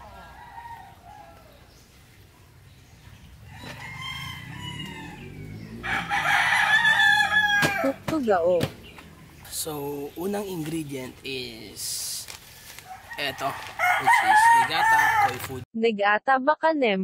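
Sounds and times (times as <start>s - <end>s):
rooster crowing: 0.0s - 1.8s, 3.4s - 8.0s, 12.5s - 15.6s.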